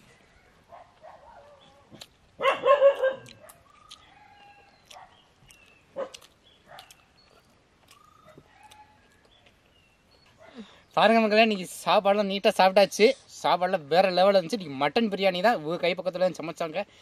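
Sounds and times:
dog yelping: 0.7s - 5.2s, 6.0s - 7.0s.

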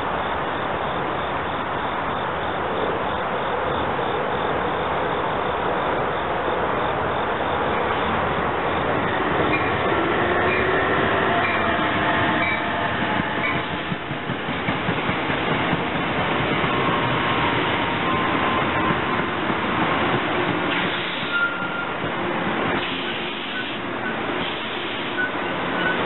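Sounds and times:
train wheels rumbling on rail: 0.0s - 26.0s
locomotive whining tones: 6.6s - 26.0s
short high wheel squeals: 20.7s - 22.0s, 22.8s - 26.0s.

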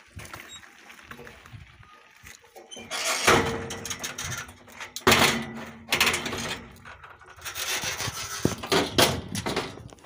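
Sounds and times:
metal gate scraping and clanking: 2.5s - 9.9s
loud strokes on metal gate: 2.8s - 4.3s.

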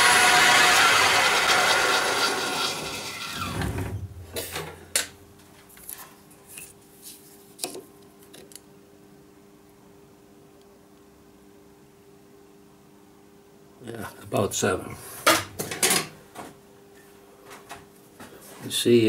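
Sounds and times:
small metal lathe running: 0.0s - 3.6s.

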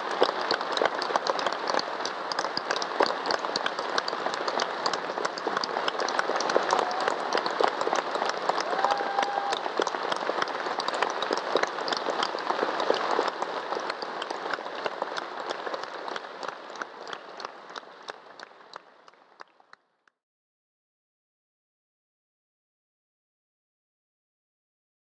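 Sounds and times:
audience applauding: 0.0s - 19.9s.

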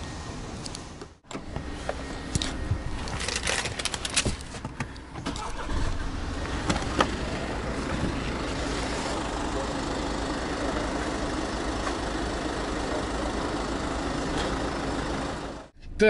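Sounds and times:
car engine rumbling: 0.0s - 15.8s.

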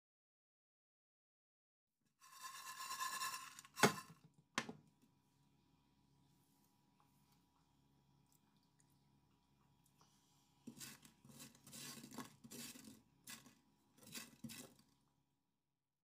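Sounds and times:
spatula scraping a frying pan: 2.2s - 4.1s, 10.7s - 14.8s.

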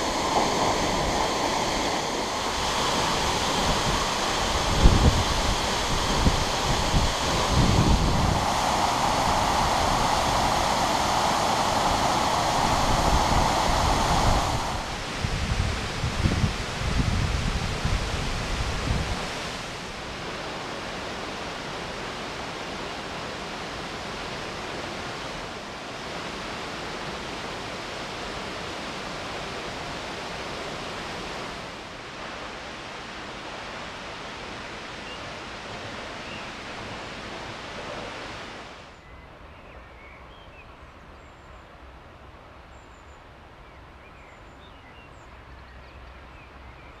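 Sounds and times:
wind buffeting microphone: 0.0s - 20.5s
waterfall rushing: 0.0s - 38.9s.

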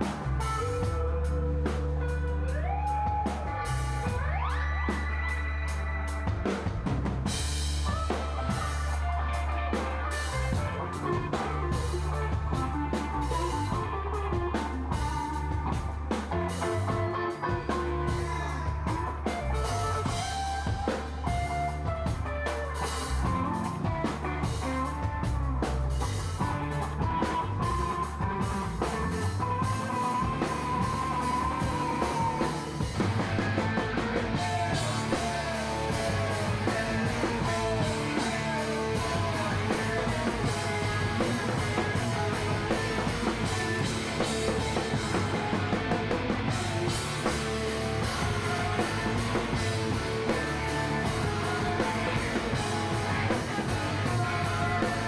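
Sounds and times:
rock band playing live: 0.0s - 55.0s.

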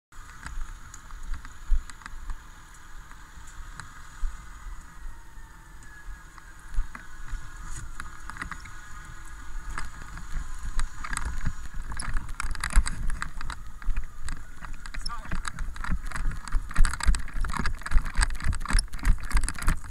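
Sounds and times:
fire engine whine: 0.2s - 19.9s
wind rumble on microphone: 0.2s - 19.9s
hose rustling and clattering: 7.3s - 19.9s.

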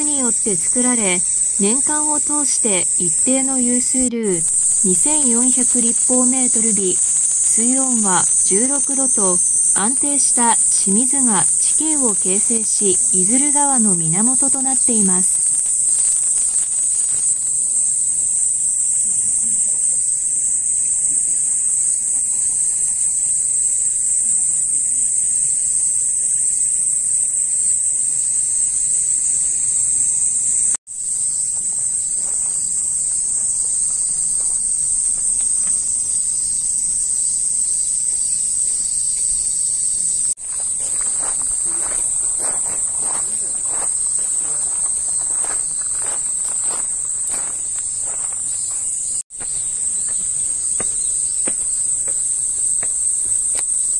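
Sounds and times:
high-pitched insect chorus: 0.0s - 53.9s
footsteps crunching on gravel: 4.4s - 10.0s, 11.0s - 17.6s, 40.4s - 53.9s.

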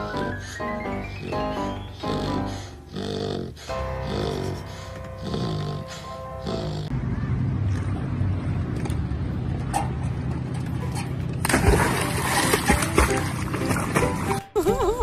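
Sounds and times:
steady low rumble: 6.9s - 12.2s
dog swimming and splashing: 10.8s - 14.4s
dog splashing into water: 11.4s - 14.3s.

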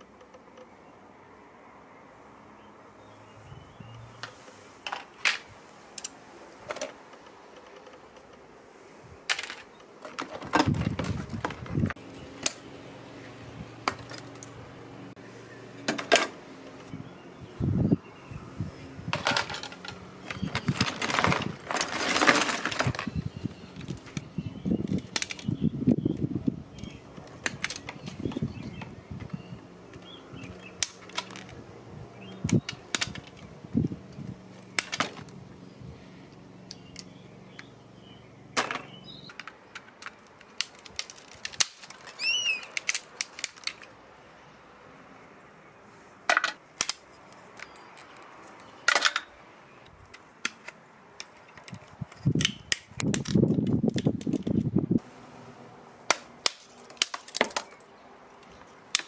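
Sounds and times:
plastic and metal parts snapping: 24.9s - 25.5s, 26.8s - 28.4s, 30.5s - 31.6s, 32.4s - 33.5s, 34.6s - 35.4s, 38.6s - 43.9s, 46.3s - 49.3s, 49.9s - 54.7s, 56.1s - 57.9s.

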